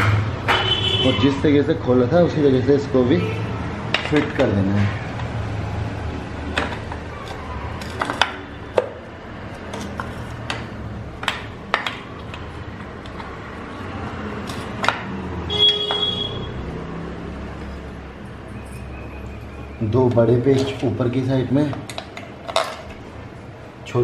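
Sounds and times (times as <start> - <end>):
metal clicks and knocks: 3.9 - 4.6.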